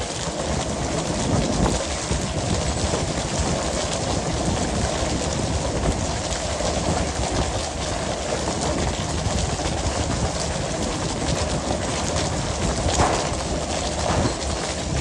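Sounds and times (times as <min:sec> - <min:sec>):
water rushing: 0:00.0 - 0:15.0
machinery running: 0:12.4 - 0:15.0
patter of small knocks: 0:13.0 - 0:14.7.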